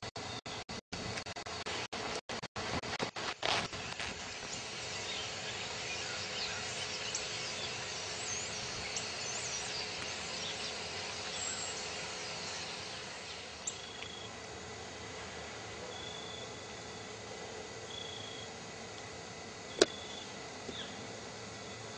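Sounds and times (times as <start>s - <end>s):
steady background hiss: 3.0s - 21.9s.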